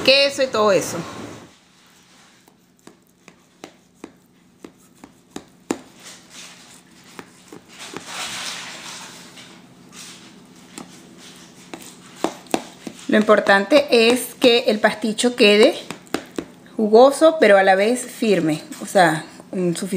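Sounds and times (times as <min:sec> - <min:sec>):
knife scraping through crust: 0:01.6 - 0:14.2
knife knocking in baking pan: 0:11.7 - 0:14.3.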